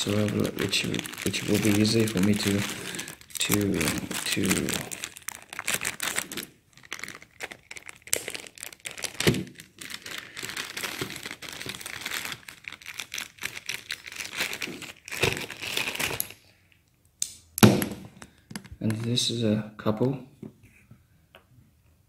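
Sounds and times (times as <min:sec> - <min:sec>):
plastic bag crinkling: 0:00.0 - 0:16.4.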